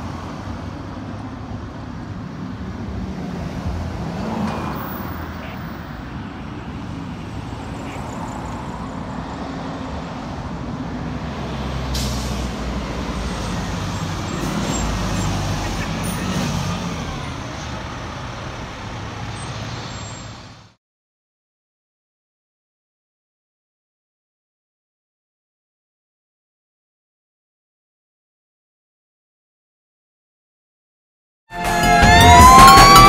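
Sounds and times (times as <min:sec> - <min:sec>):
passing traffic: 0:00.0 - 0:20.8, 0:31.5 - 0:33.0
diesel truck engine running: 0:11.8 - 0:20.7
air brake hiss: 0:11.9 - 0:12.6.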